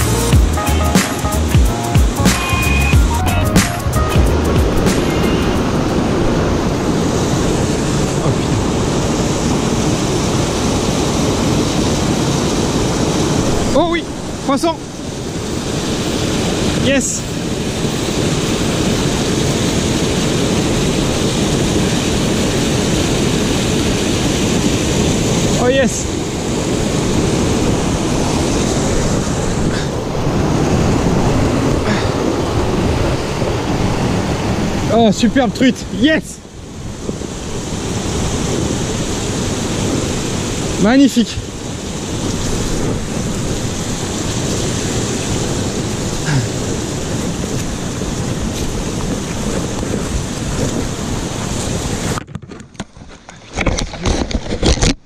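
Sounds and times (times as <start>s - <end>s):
waterfall rushing into pool: 2.1s - 52.2s.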